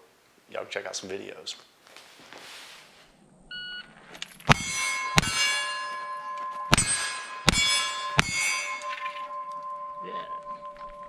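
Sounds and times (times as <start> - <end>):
steel targets ringing: 4.3 - 11.0
gunshots: 4.5 - 5.8, 6.7 - 8.8.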